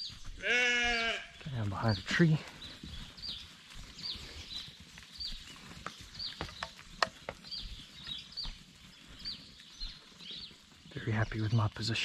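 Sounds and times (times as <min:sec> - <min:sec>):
footsteps crunching on dry leaves: 0:00.0 - 0:11.9
bird chirping: 0:00.0 - 0:12.0.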